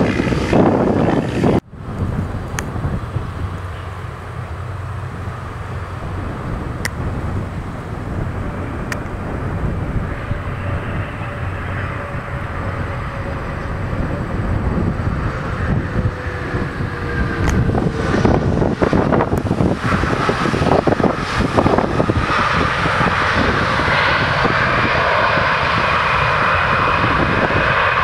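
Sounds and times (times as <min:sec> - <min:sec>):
jet engines roaring on landing: 0:00.0 - 0:28.0.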